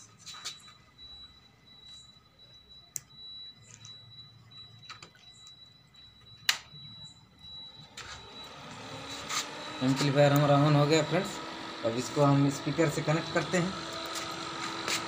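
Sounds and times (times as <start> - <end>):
faint high whine: 0.0 - 15.0.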